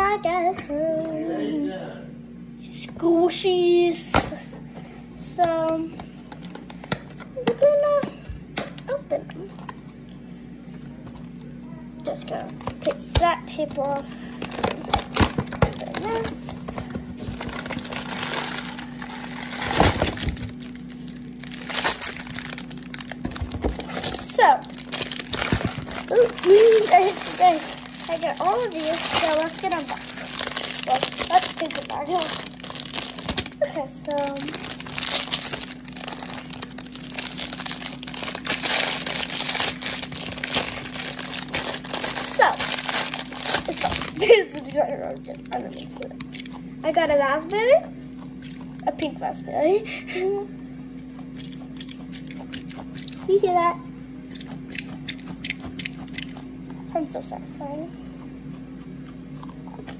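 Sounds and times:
packing tape tearing: 12.3s - 46.6s.

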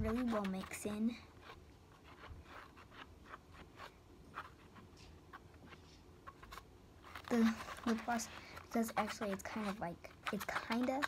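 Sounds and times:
stirrer scraping slime in cup: 0.0s - 11.0s.

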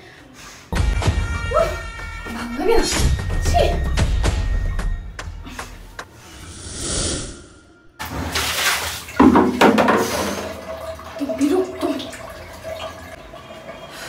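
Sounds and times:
water splashing and running: 8.0s - 14.0s.

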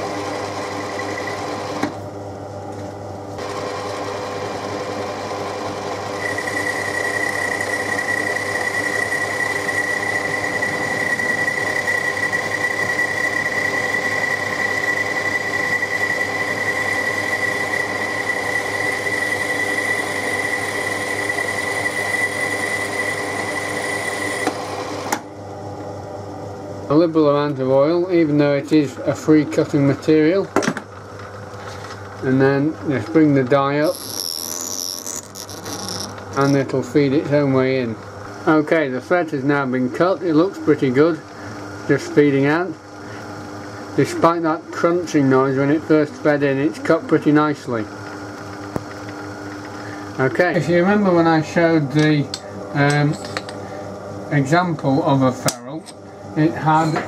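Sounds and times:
lathe running: 0.0s - 2.0s, 3.3s - 25.3s, 31.0s - 39.1s
high whine: 6.2s - 24.8s.

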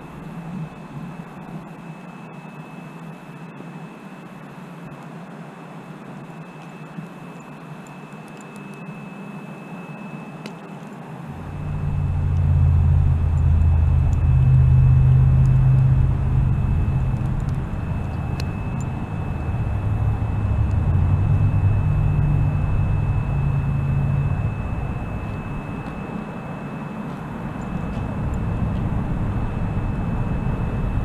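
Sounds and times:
low engine drone: 0.0s - 5.6s, 11.2s - 31.0s
faint high whine: 0.0s - 31.0s.

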